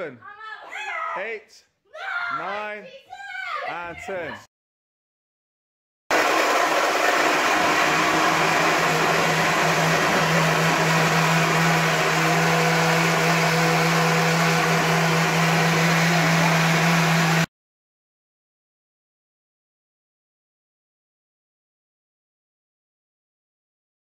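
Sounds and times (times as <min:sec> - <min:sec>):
blender running: 0:06.1 - 0:17.5.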